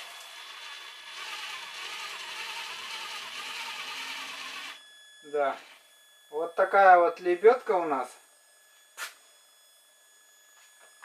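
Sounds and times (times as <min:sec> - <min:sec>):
electric winch motor whirring: 0:00.0 - 0:05.9.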